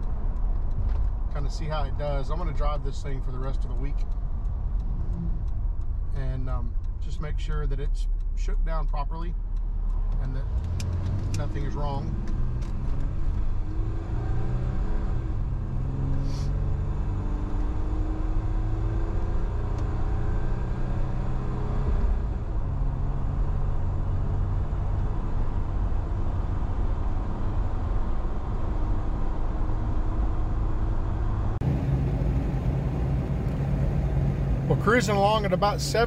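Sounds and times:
road and wind noise: 0.0 - 36.0
car engine running: 22.5 - 36.0.

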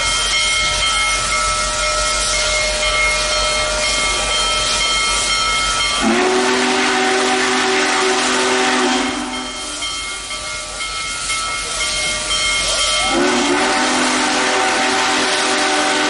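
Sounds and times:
steam hissing: 0.0 - 16.0
steam whistle chord: 5.9 - 9.9, 13.0 - 16.0.

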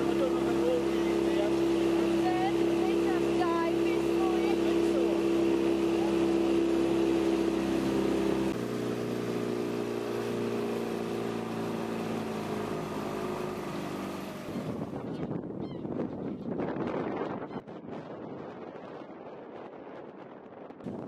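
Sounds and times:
motorboat engine running: 0.0 - 21.0
wind noise on microphone: 14.3 - 21.0.

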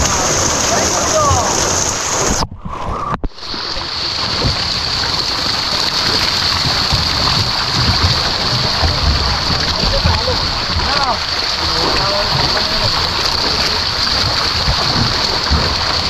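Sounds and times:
fish splashing at the surface: 3.3 - 16.0.

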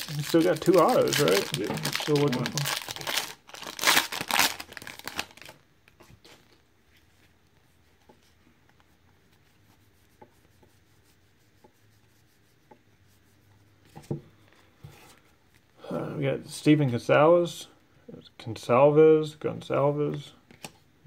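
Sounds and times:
foil wrapper crinkling: 0.0 - 5.6.

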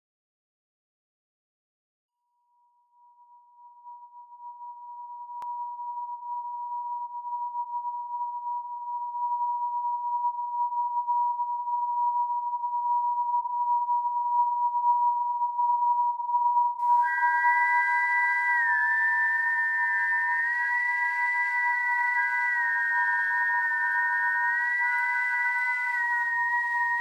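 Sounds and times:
steady pure tone: 16.8 - 27.0.

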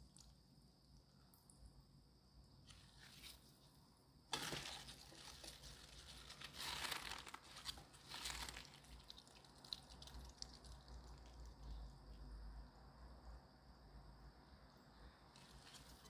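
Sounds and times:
plastic gloves crinkling: 4.3 - 11.8.

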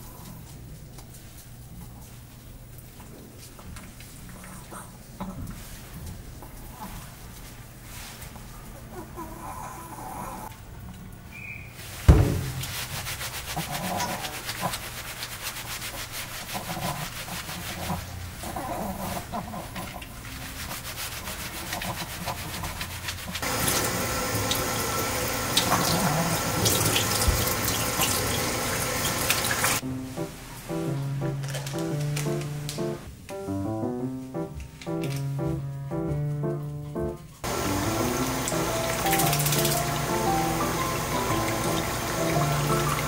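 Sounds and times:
shower sprayer hissing water: 11.8 - 18.3, 20.1 - 32.6, 37.4 - 43.0
squishy scrubbing of lather: 11.9 - 24.0
sharp thump: 12.1 - 13.0.

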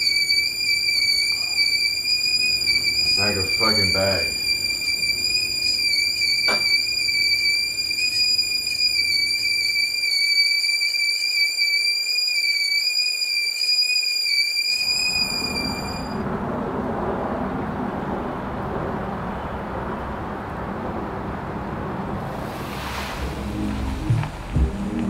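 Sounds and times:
high-pitched ringing tone: 0.0 - 16.2
dense rushing noise: 15.1 - 25.0
high hiss: 22.3 - 25.0.

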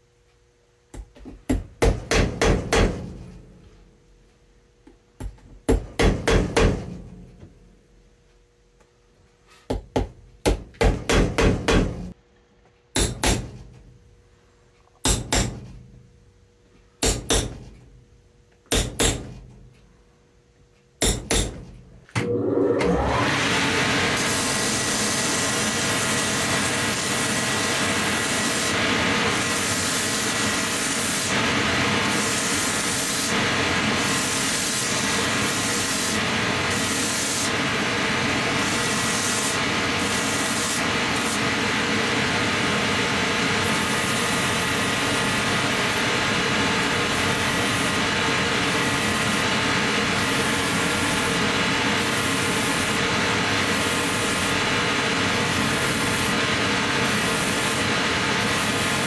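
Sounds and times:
sanding wheel grinding rubber: 24.1 - 41.5, 43.6 - 59.0.

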